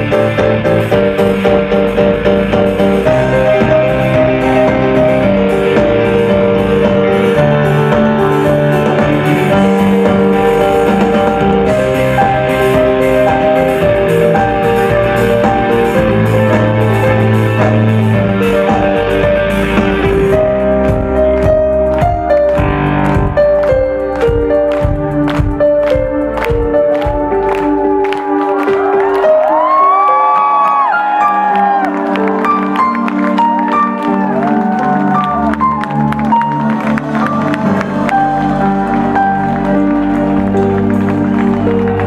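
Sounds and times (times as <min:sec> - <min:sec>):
drum kit: 0:00.0 - 0:30.0
synthesizer chords: 0:00.0 - 0:42.0.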